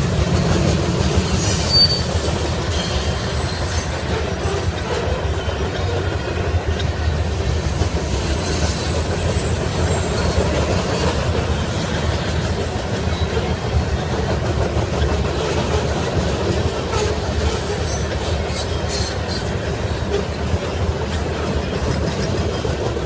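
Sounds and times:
train wheels rumbling on rails: 0.0 - 23.0
faint high wheel squeal: 1.3 - 6.0.

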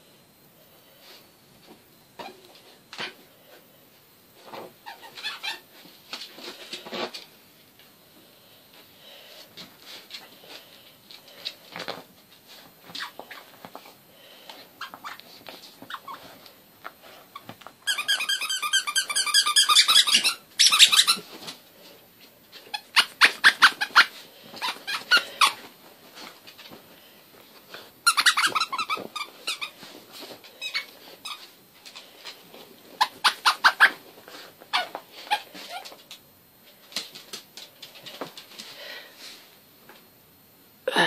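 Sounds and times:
squeaky toy squeaking: 4.9 - 5.6, 17.9 - 21.2, 28.0 - 29.7, 33.0 - 34.0.

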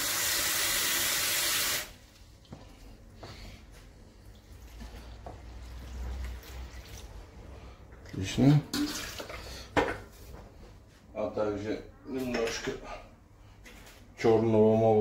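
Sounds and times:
water running from tap: 0.0 - 2.0.

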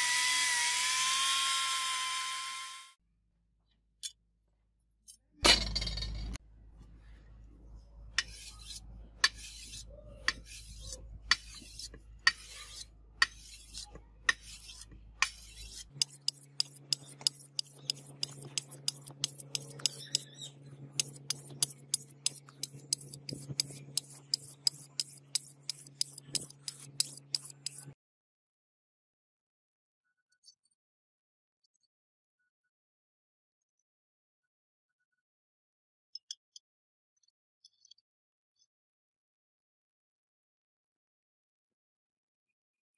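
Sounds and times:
sharpening stone scraping steel blade: 8.2 - 28.0.

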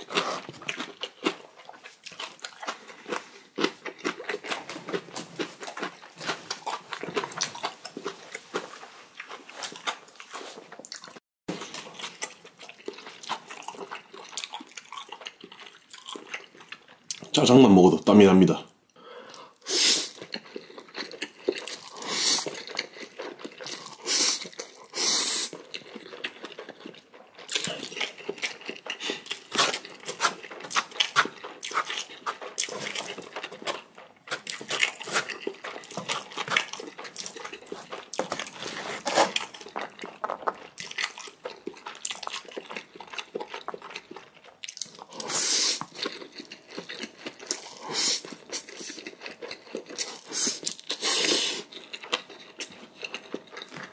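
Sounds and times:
wet chewing and crunching: 0.0 - 17.5, 19.3 - 53.9
slurping noodles: 21.6 - 25.8, 45.1 - 46.0, 47.4 - 49.1, 50.0 - 51.8.

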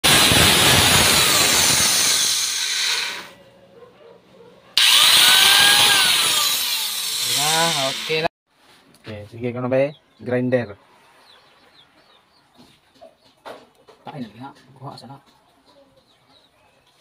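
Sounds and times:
angle grinder motor whining: 0.1 - 3.4, 4.8 - 8.3.

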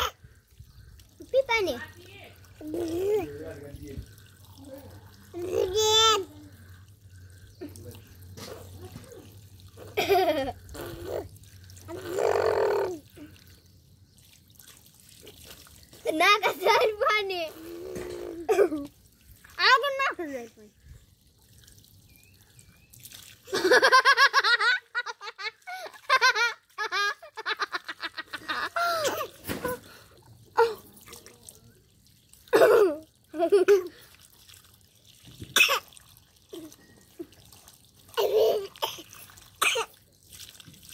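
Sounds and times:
water trickling from hose: 0.0 - 40.9
toddler babbling and laughing: 2.6 - 3.6, 4.7 - 6.7, 8.5 - 11.3, 11.9 - 13.3, 16.0 - 18.9, 38.2 - 39.1.

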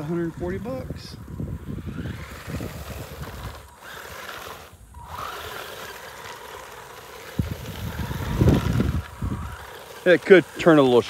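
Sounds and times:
rc truck motor whining: 0.0 - 11.0.

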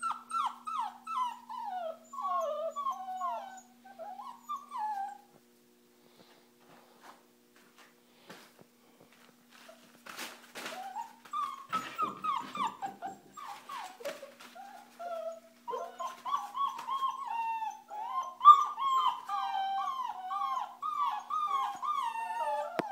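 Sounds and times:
puppy whimpering: 0.0 - 5.3, 10.6 - 22.9.

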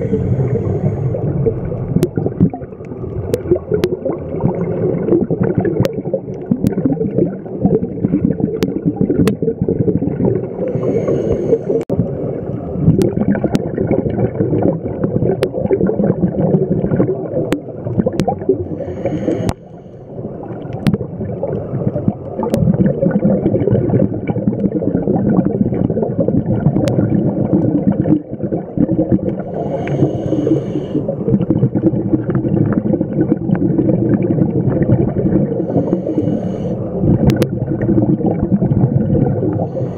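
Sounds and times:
regulator inhalation hiss: 0.0 - 1.2, 10.7 - 11.8, 18.7 - 20.0, 29.5 - 31.1, 35.6 - 37.0, 39.6 - 39.9
underwater exhaust bubbles: 0.0 - 39.9.

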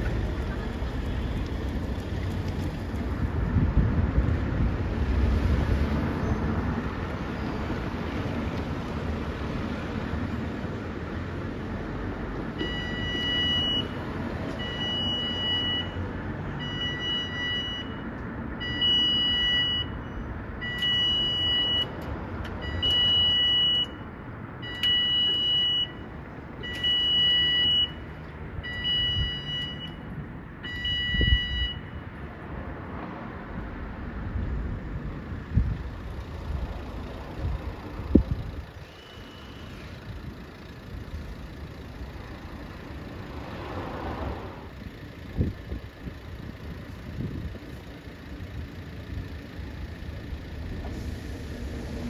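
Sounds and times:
two-tone level crossing alarm: 12.6 - 20.0, 20.6 - 22.0, 22.6 - 24.0, 24.6 - 32.0.

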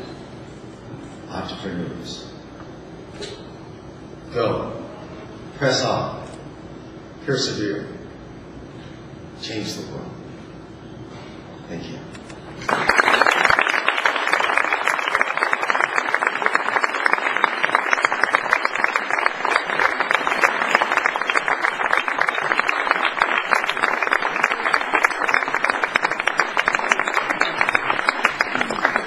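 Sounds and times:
audience applauding: 12.6 - 29.0.

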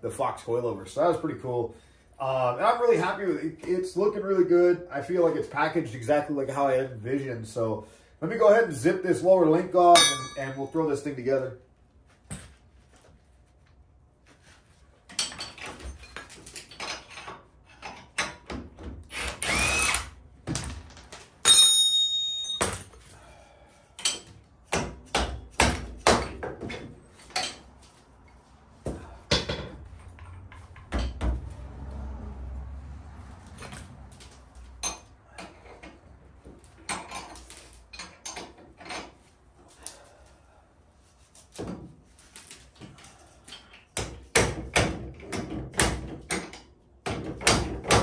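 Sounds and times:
metal clanks and knocks: 9.9 - 10.8, 15.1 - 19.0, 24.0 - 27.7, 28.9 - 31.5, 36.8 - 39.2
cordless power tool whirring: 19.1 - 20.2.

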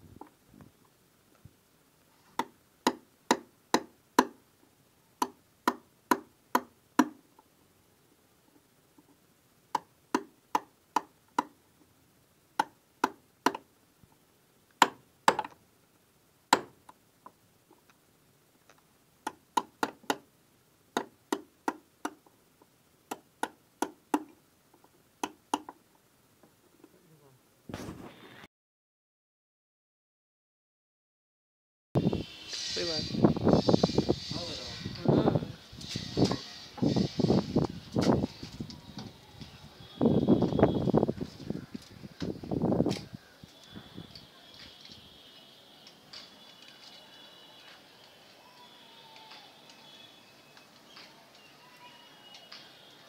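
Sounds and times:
hammer striking steel chisel: 16.5 - 16.8.

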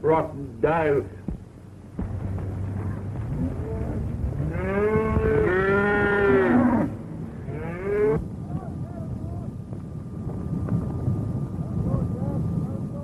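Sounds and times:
low steady rumble: 0.0 - 13.0
cattle mooing: 3.4 - 8.2.

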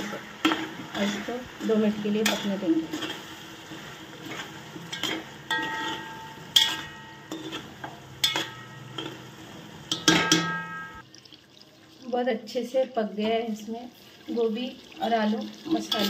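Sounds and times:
metal spoon scraping a pot: 0.0 - 11.0
low sizzle: 0.0 - 16.0
pot ringing: 4.9 - 11.0.

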